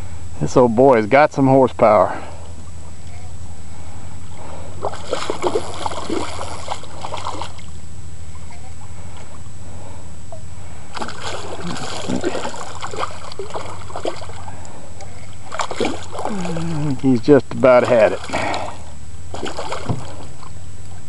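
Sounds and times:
steady low hum: 0.0 - 21.0
fish splashing at water surface: 4.8 - 7.7, 10.9 - 14.6, 15.4 - 17.0, 18.0 - 20.5.

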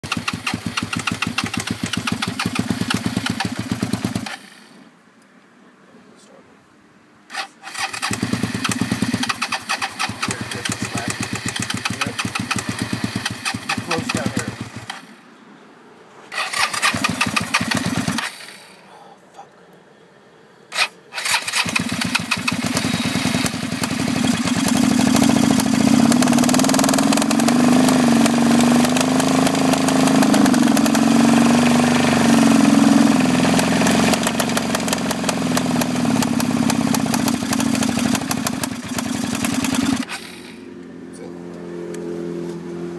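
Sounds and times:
motorcycle engine cranking: 0.0 - 4.6, 7.3 - 15.1, 16.3 - 18.6, 20.7 - 32.5, 33.5 - 40.6
motorcycle engine idling: 0.0 - 4.8, 8.0 - 15.2, 16.6 - 18.4, 21.2 - 42.0.

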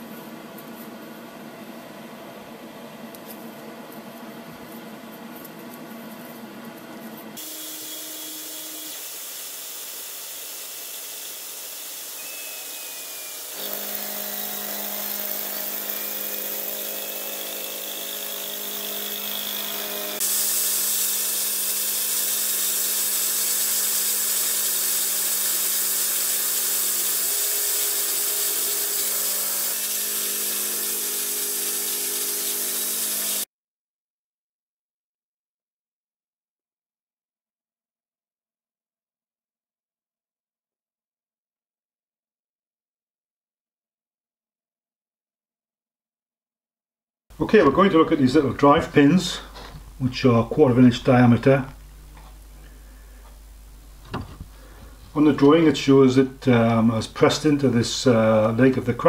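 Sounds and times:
milling machine cutting metal: 7.4 - 33.4.

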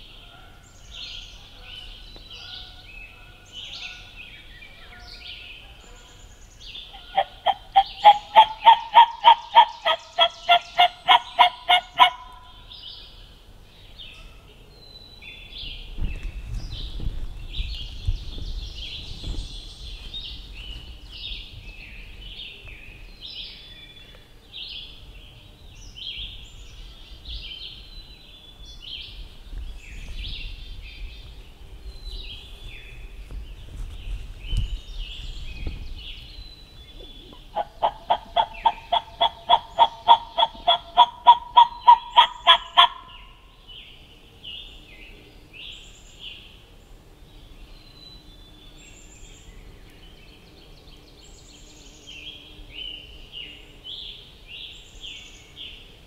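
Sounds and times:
songbirds chirping: 0.0 - 56.0
turkey yelps: 7.0 - 12.3, 37.6 - 43.0.

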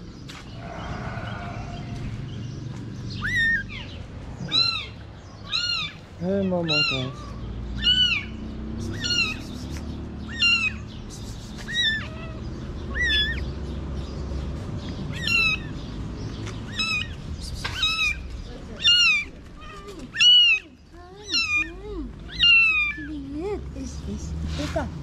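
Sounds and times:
kitten meowing: 3.2 - 9.6, 10.3 - 10.8, 11.6 - 13.4, 15.1 - 15.7, 16.7 - 18.2, 18.8 - 23.1.

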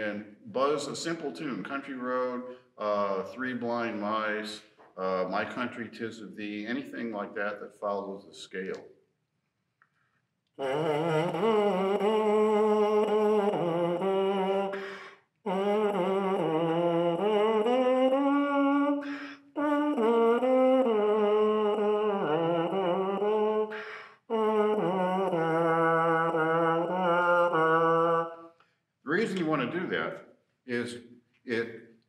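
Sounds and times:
lips buzzing trombone mouthpiece: 10.6 - 28.6.

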